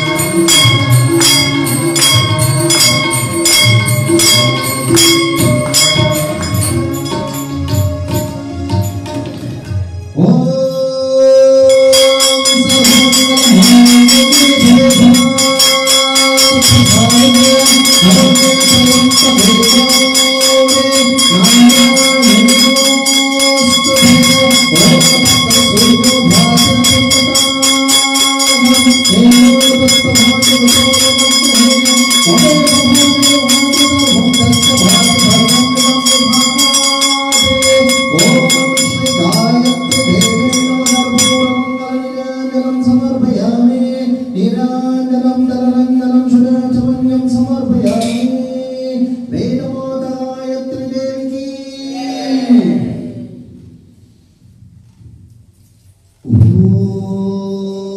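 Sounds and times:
sustained ringing tones: 0.0 - 8.3, 11.6 - 44.2
person singing devotional melody: 0.0 - 8.8, 10.2 - 53.0
jingling percussion beat: 0.0 - 10.1, 11.6 - 43.9.

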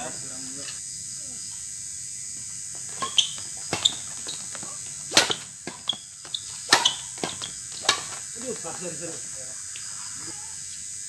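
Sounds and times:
shoe squeaks on court: 2.8 - 8.2
racket hitting shuttlecock: 2.8 - 8.6.

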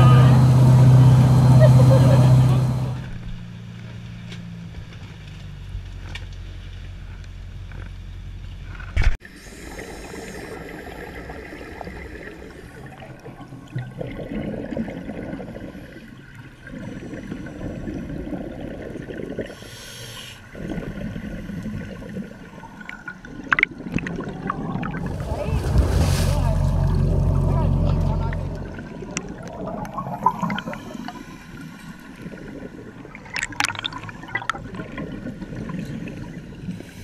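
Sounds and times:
boat engine humming: 0.0 - 8.8, 24.5 - 37.0
bubbles rushing and gurgling: 9.2 - 19.7, 20.5 - 37.0
loud thump into water: 25.0 - 27.1.

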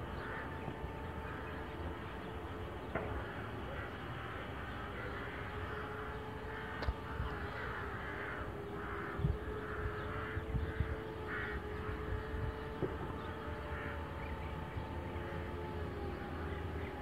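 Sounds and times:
quadcopter motors humming: 0.0 - 17.0
crows cawing: 0.1 - 1.4, 3.1 - 14.4.

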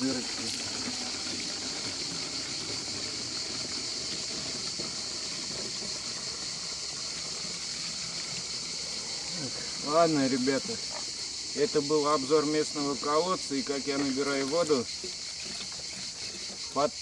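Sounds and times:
water pouring into bottles: 0.0 - 11.2
high-pitched insect chorus: 0.0 - 17.0.

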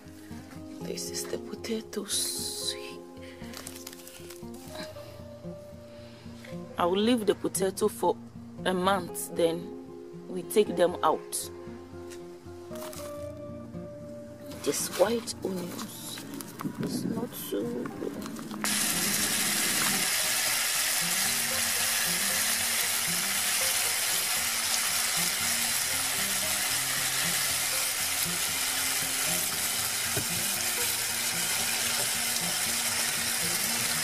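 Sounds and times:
water running into a sink: 18.6 - 26.5
onions rinsed by hand in a bowl: 18.6 - 34.0.

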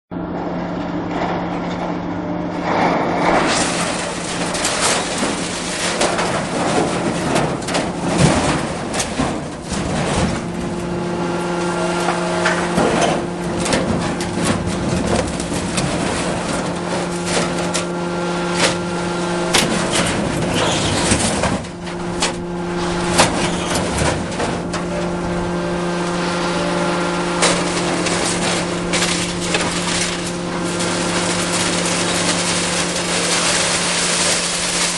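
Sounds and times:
excavator diesel engine running: 0.1 - 34.9
scrap metal clanking and crashing: 1.1 - 34.9.

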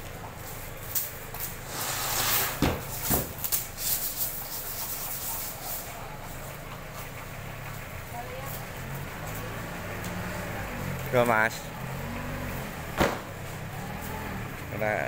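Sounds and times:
plywood scraping: 1.6 - 3.1.

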